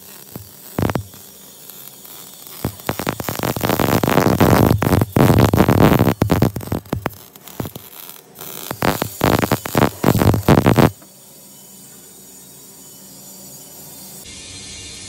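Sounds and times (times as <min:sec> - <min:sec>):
welding arc crackling: 0:00.0 - 0:11.1
steady low hum: 0:00.0 - 0:12.8.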